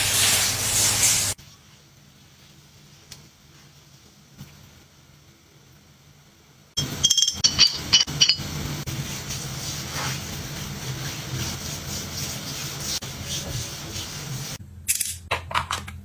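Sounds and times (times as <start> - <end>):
glass clinking: 6.8 - 8.6.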